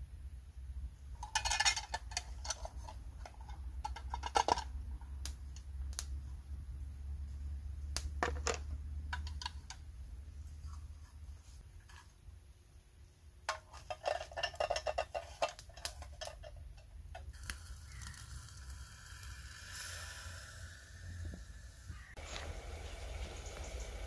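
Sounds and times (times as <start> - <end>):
low steady rumble: 0.0 - 11.8
plastic tub and metal tin clattering: 1.2 - 4.8, 13.5 - 17.3.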